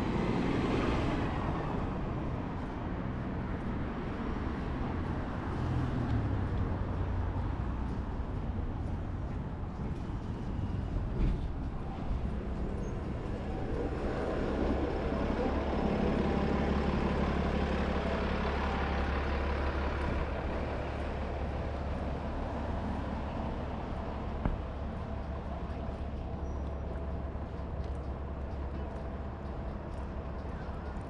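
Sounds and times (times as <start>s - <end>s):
heavy vehicle engine rumbling: 0.0s - 31.0s.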